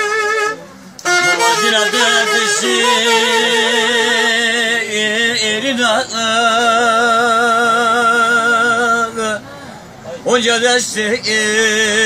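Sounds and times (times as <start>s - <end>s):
held drone note: 0.0s - 4.3s
wavering folk melody: 0.0s - 4.8s.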